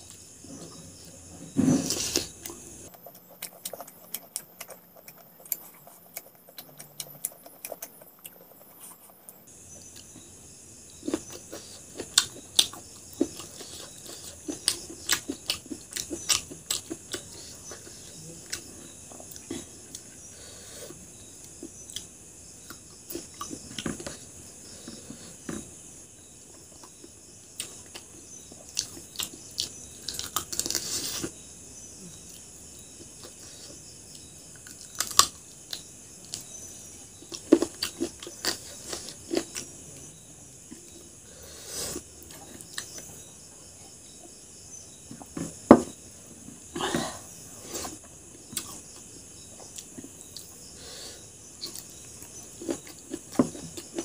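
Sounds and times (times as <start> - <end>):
mouth chewing: 1.8 - 10.2, 11.0 - 25.4, 47.6 - 50.6.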